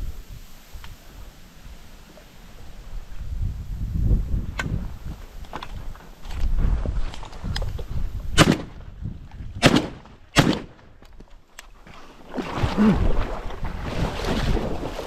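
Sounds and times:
shotgun shots with echo: 0:08.4 - 0:08.8, 0:09.6 - 0:10.8.

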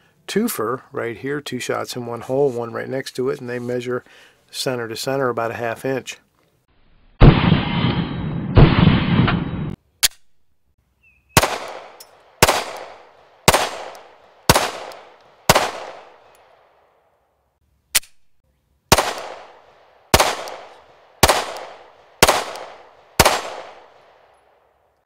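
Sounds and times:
pistol shots echoing: 0:11.4 - 0:16.6, 0:18.9 - 0:24.6.

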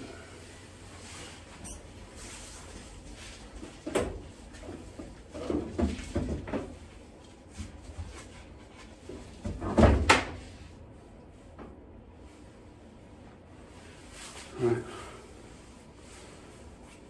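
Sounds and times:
frame knocking and scraping: 0:03.6 - 0:06.9.

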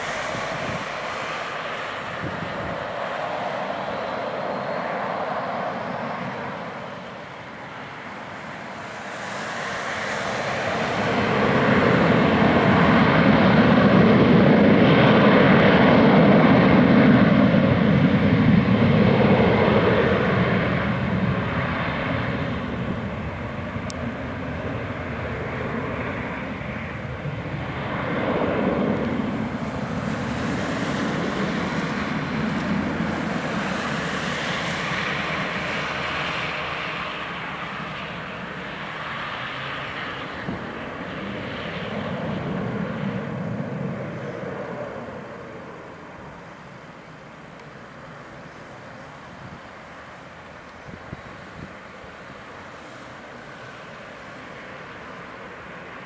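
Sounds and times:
jet engines at takeoff: 0:00.0 - 0:56.0.

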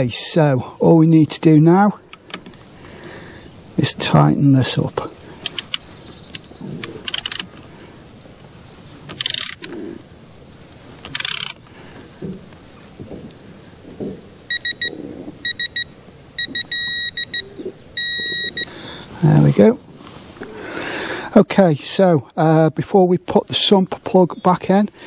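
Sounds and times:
torque wrench ratchet clicking: 0:09.2 - 0:09.6, 0:11.1 - 0:11.6
torque wrench beeping: 0:14.5 - 0:18.7.

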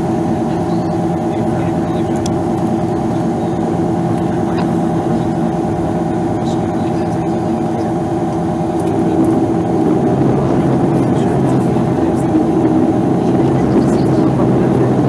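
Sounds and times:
turboprop engines droning: 0:00.0 - 0:15.0.

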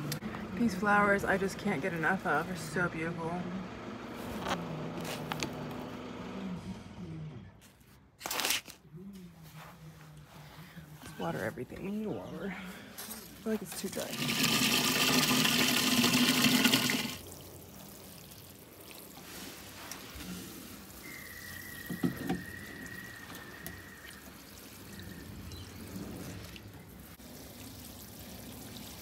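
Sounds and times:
water pouring and trickling: 0:13.1 - 0:29.0
tap water running into can: 0:13.6 - 0:19.2.

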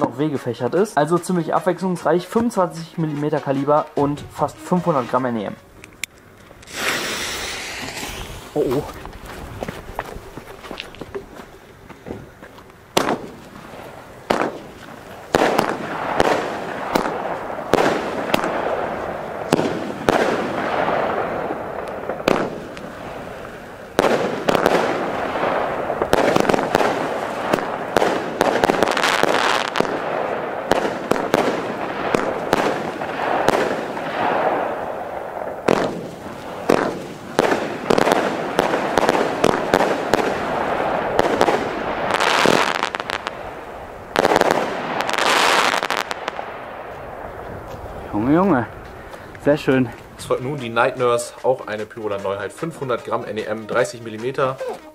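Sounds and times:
firework shots bursting: 0:06.6 - 0:08.9, 0:12.9 - 0:47.4.

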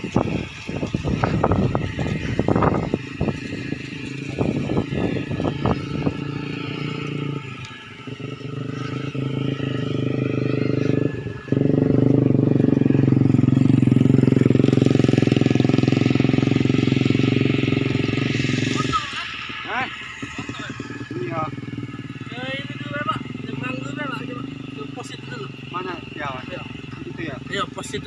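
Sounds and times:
engine pulsing drone: 0:00.0 - 0:28.0.

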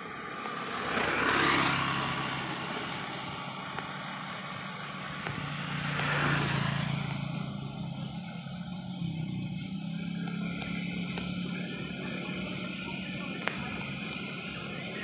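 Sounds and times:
tyre hiss on wet road: 0:00.0 - 0:07.7
steady engine hum: 0:00.0 - 0:15.0.

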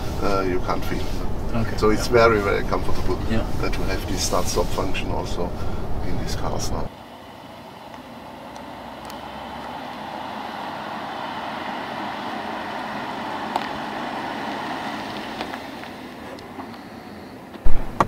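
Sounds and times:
car driving past: 0:08.2 - 0:18.0.

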